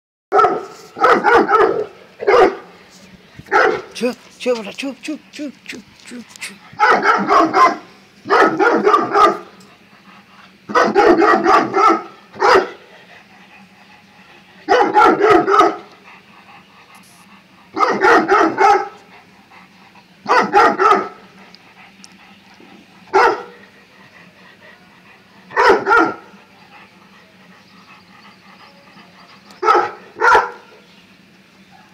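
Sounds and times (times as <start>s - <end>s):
dog barking: 0.3s - 2.7s, 3.5s - 3.9s, 6.8s - 9.5s, 10.7s - 12.8s, 14.7s - 15.8s, 17.8s - 19.0s, 20.3s - 21.2s, 23.1s - 23.6s, 25.5s - 26.3s, 29.6s - 30.8s.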